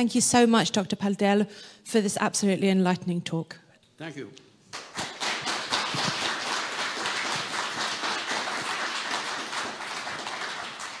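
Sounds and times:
audience applauding: 4.7 - 11.0.

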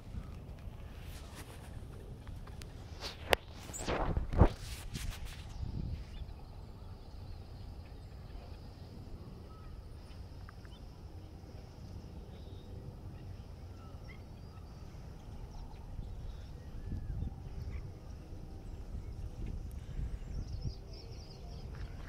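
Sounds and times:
low steady rumble: 5.4 - 22.0
faint waterbird calls: 6.1 - 18.3.

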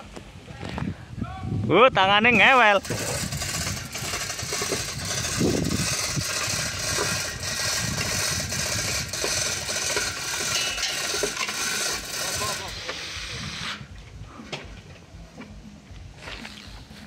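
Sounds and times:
mechanical rattling engine-like: 2.2 - 13.5.

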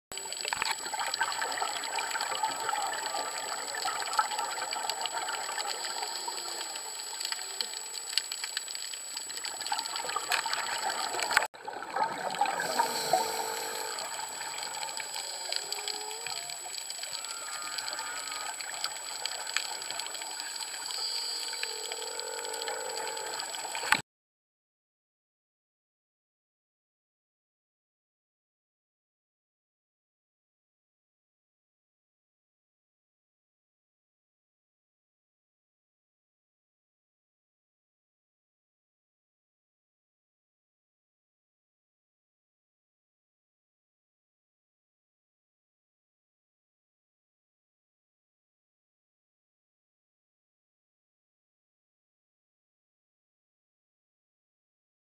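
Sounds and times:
bubbles gurgling underwater: 0.2 - 7.9, 9.2 - 24.0
small clicks: 5.6 - 11.5
steady regulator hiss: 12.4 - 24.0.

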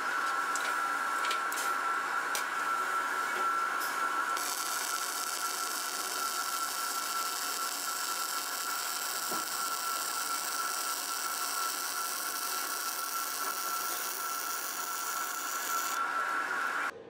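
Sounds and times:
thin steady whine: 0.0 - 17.0
welding arc hissing: 3.8 - 16.9.

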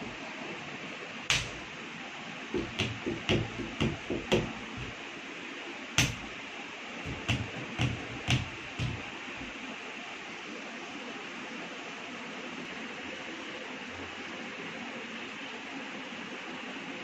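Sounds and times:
bare feet stamping on tiles: 1.3 - 1.7, 2.6 - 5.0, 6.0 - 6.4, 7.0 - 9.6.

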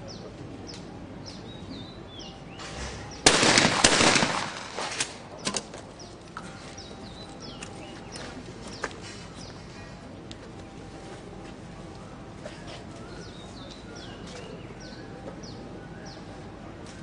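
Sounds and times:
small birds chirping: 0.0 - 4.3, 5.1 - 10.1, 12.0 - 16.6
shotgun shot: 2.6 - 5.4
faint gunshot cracks: 2.6 - 5.6.

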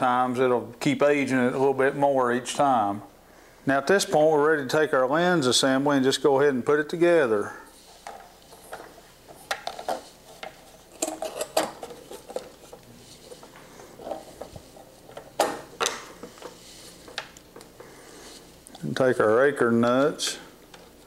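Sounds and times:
plastic parts clicking and clattering: 8.0 - 17.8.

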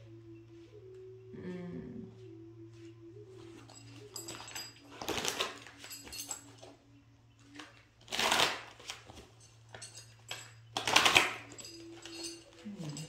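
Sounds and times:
faint background tone: 0.0 - 13.0
cards rustling and shuffling: 4.3 - 5.9, 7.4 - 9.8.

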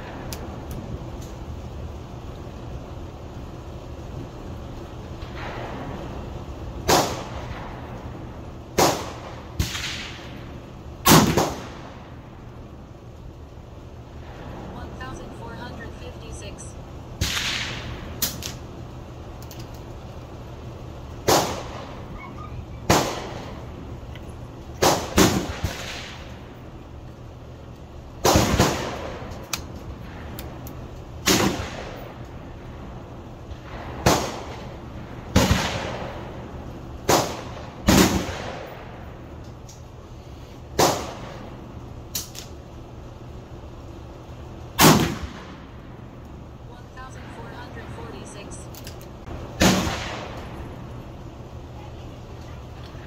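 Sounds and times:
gunshots with echo: 11.1 - 11.9.

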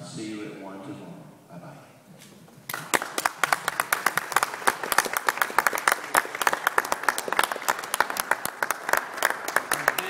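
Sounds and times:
close hands clapping: 2.6 - 10.0
group applauding: 2.6 - 10.0.

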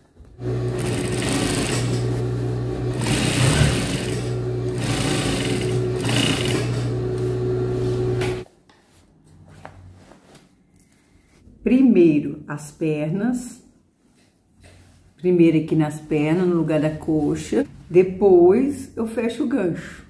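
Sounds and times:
sewing machine stitching fabric: 0.3 - 7.4.

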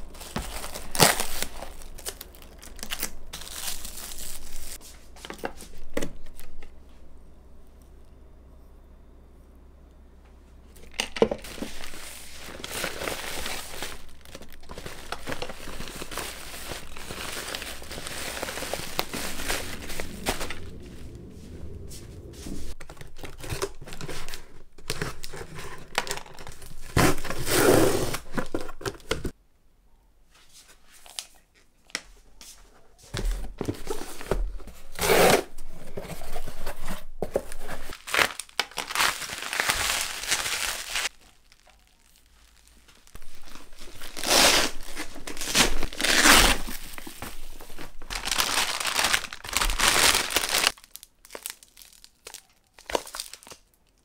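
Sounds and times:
plastic packaging crinkling: 0.0 - 6.6, 10.8 - 21.3, 22.7 - 29.3, 36.0 - 54.0
packing tape tearing: 0.2 - 4.8, 37.9 - 42.2, 43.0 - 53.6.

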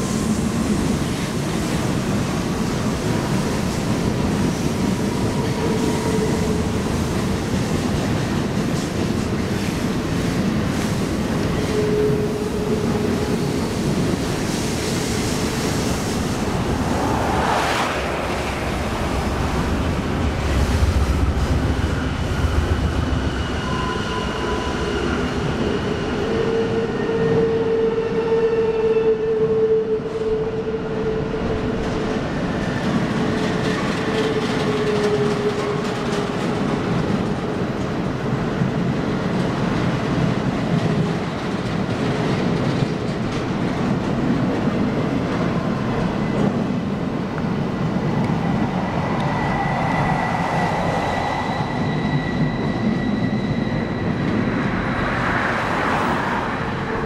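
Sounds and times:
train wheels rumbling on rails: 0.0 - 57.0
wheels squealing: 49.0 - 55.3.

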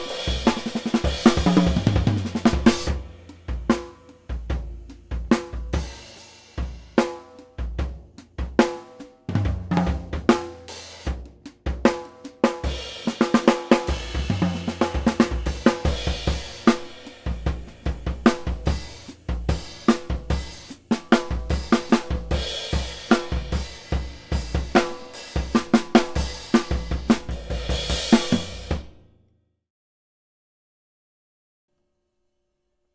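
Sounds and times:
bass drum thuds: 0.0 - 6.0, 9.3 - 12.0, 13.9 - 29.0
snare drum strokes: 0.0 - 28.9.

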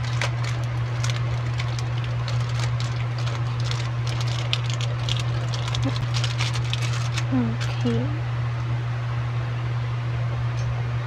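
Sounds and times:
plastic packaging crinkling: 0.0 - 8.0
steady low hum: 0.0 - 11.0.

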